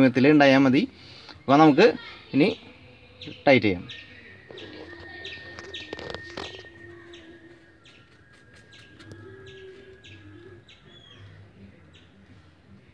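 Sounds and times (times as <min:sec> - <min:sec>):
birds chirping: 0:00.0 - 0:12.9
low cooing: 0:04.5 - 0:12.3.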